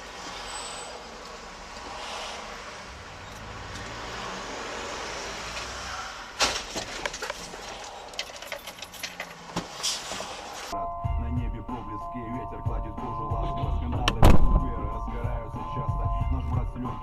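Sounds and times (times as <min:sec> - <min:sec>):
vehicle road and engine noise: 0:00.0 - 0:17.0
motorcycle crash: 0:06.4 - 0:08.8
knocks and clatters of debris: 0:06.4 - 0:10.2.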